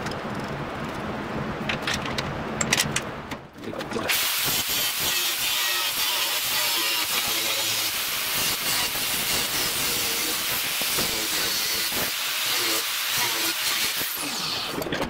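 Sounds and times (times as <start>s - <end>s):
angle grinder cutting steel: 4.1s - 14.9s.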